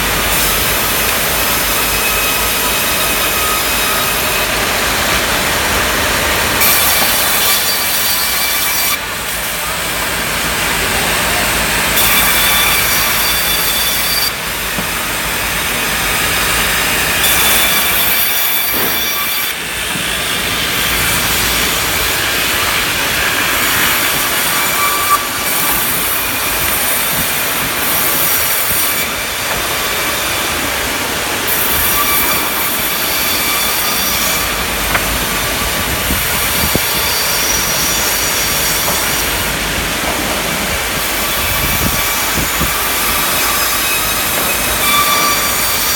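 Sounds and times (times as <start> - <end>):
sawmill saw whining: 0.0 - 45.9.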